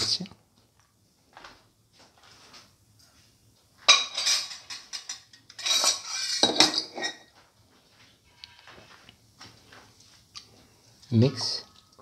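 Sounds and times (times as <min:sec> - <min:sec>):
spatula scraping a pan: 0:05.5 - 0:07.3.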